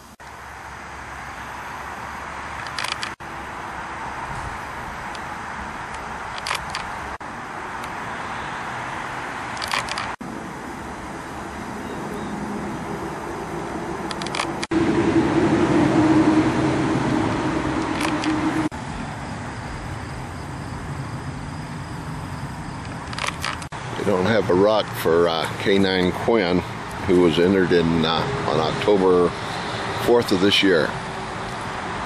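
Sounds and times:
road traffic: 0.0 - 32.0
wind noise: 4.2 - 7.2, 13.6 - 24.0
steady low hum: 10.2 - 29.7.

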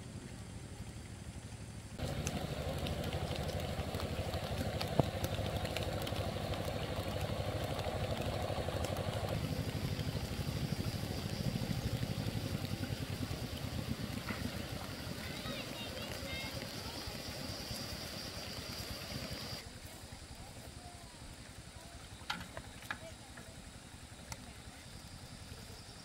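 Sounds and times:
walking tractor engine chugging: 0.4 - 19.6.

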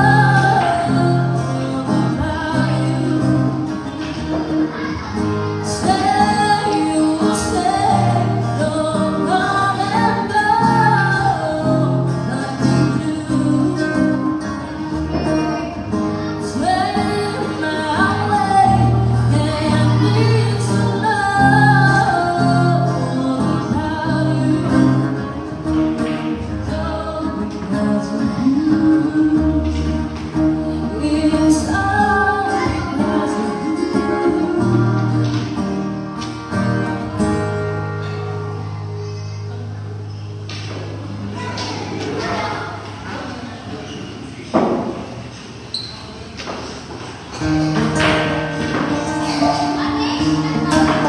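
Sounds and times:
woman singing: 0.0 - 3.9, 5.6 - 15.4, 16.3 - 25.4, 26.2 - 35.8
acoustic guitar: 0.0 - 51.0.

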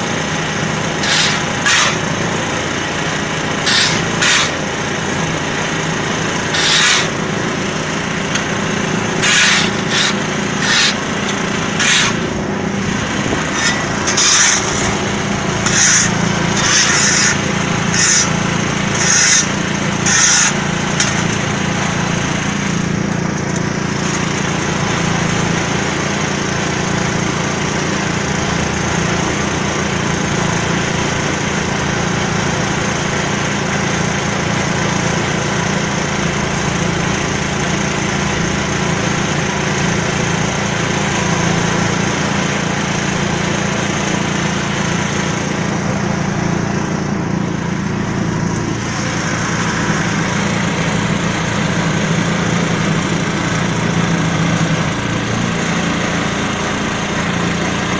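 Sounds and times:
diesel engine running: 0.0 - 57.9
hissing scrape: 1.0 - 2.0, 3.6 - 4.6, 6.5 - 7.2, 9.2 - 11.1, 11.8 - 12.2, 13.4 - 15.0, 15.6 - 18.3.

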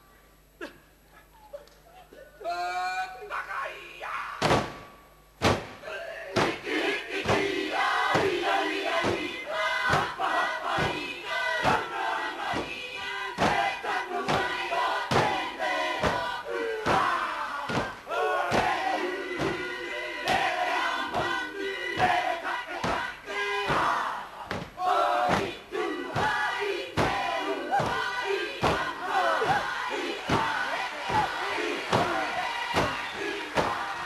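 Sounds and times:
group chanting and shouting: 2.4 - 34.0
body slaps: 4.4 - 5.8, 32.8 - 33.0.

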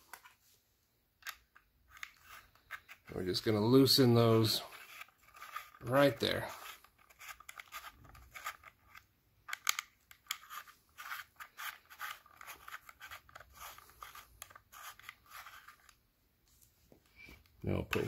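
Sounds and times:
hex key clicking and scratching metal: 4.8 - 5.8, 6.6 - 15.9.

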